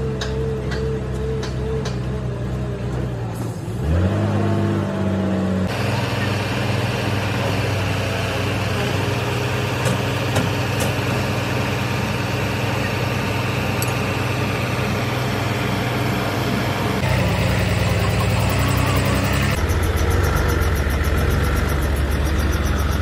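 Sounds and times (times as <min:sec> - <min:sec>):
diesel engine idling: 0:05.5 - 0:23.0.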